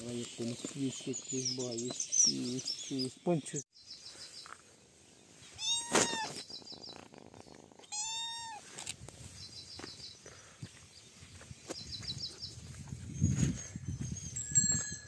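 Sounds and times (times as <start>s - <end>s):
cat meowing: 5.6s - 6.4s, 7.8s - 8.6s.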